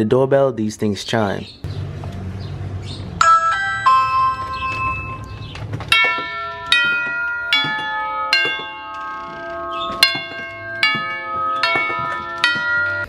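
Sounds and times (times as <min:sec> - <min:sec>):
tubular doorbell chime tune: 0:03.2 - 0:13.0.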